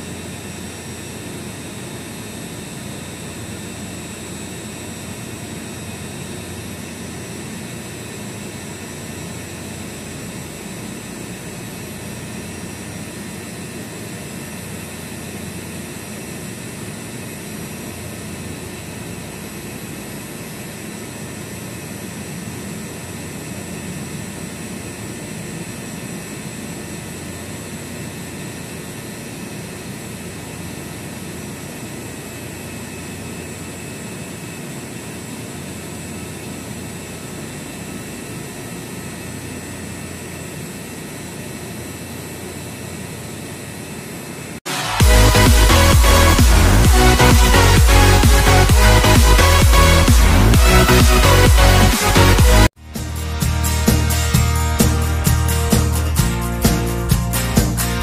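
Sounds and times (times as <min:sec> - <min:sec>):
compressor rushing hum: 0:00.0 - 0:58.0
high-pitched whines: 0:31.4 - 0:58.0.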